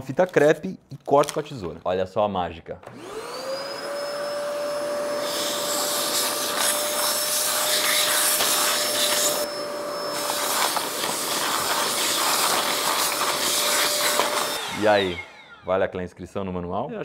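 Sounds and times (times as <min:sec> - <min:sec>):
vacuum cleaner motor whine: 0:02.8 - 0:15.8.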